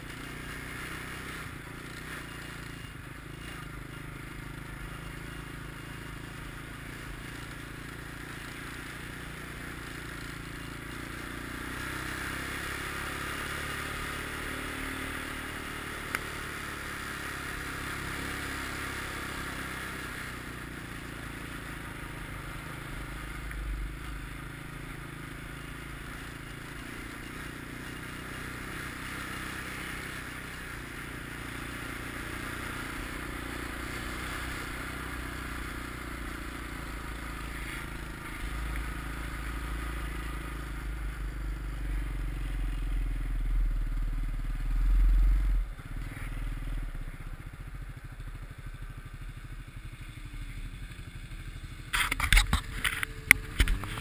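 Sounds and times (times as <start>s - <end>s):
atv engine running: 0.0s - 54.0s
sharp click: 51.9s - 54.0s.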